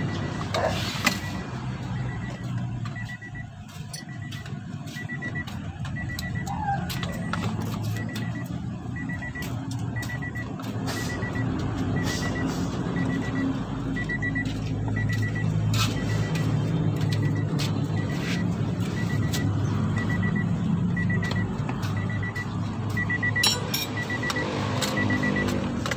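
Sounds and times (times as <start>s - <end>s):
high electronic beep: 0.0s - 25.9s.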